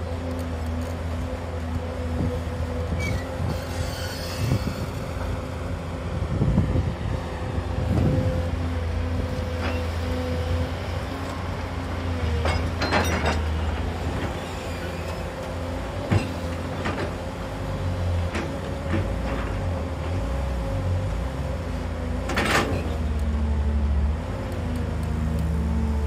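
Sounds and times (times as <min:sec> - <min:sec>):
diesel engine running: 0:00.0 - 0:26.0
excavator bucket clanking: 0:12.3 - 0:13.7.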